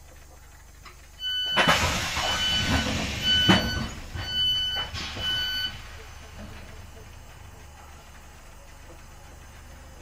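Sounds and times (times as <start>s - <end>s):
train door warning beeps: 1.2s - 7.0s
sliding doors hissing and rumbling: 1.4s - 10.0s.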